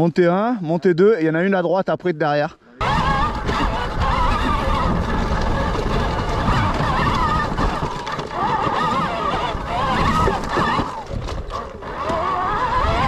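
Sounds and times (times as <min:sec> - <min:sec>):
electric motor whining: 0:02.8 - 0:13.0
tyres and wind rumbling: 0:02.8 - 0:13.0.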